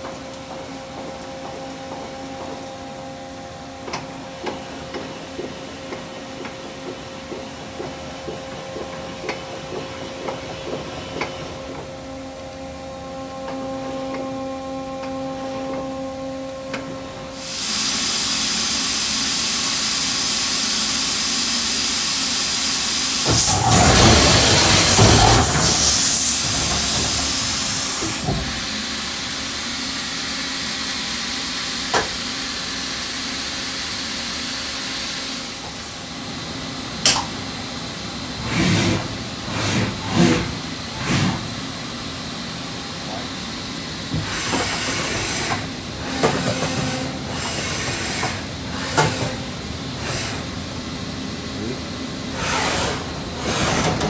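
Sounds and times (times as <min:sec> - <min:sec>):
machine hissing: 0:17.3 - 0:29.3.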